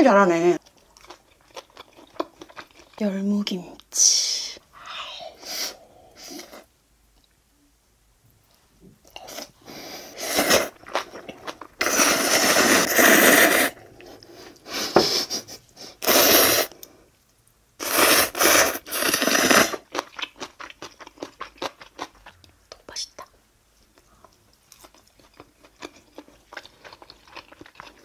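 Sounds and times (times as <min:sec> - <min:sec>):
noodles slurped loudly: 0:11.8 - 0:13.8, 0:17.8 - 0:19.9.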